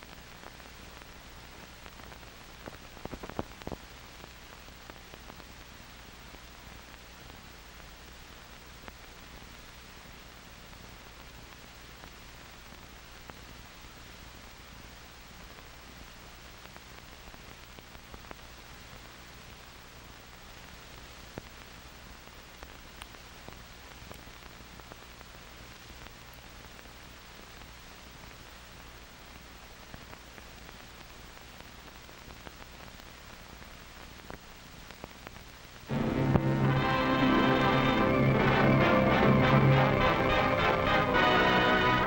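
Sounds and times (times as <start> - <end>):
film soundtrack hiss: 0.0 - 42.0
low steady hum: 0.0 - 42.0
faint clicks: 1.8 - 7.4, 20.4 - 28.4, 29.8 - 35.9.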